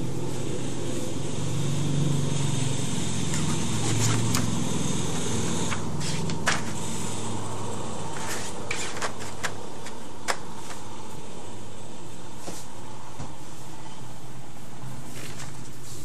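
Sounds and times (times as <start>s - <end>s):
low mechanical hum: 0.0s - 16.0s
paper sheet crackling: 8.2s - 10.8s.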